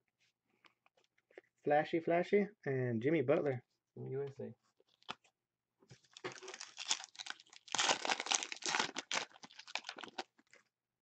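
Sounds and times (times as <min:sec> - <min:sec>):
foil wrapper crinkling: 0:06.0 - 0:10.6.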